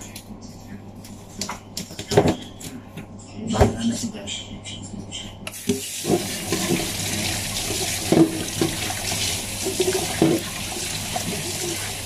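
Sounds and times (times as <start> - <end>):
tap running into sink: 5.6 - 11.7.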